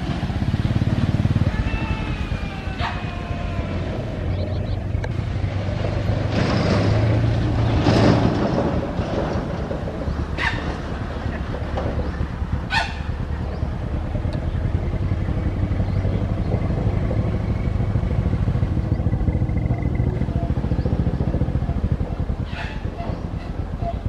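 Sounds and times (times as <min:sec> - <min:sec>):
motorcycle engine idling: 0:00.0 - 0:06.0, 0:09.9 - 0:24.0.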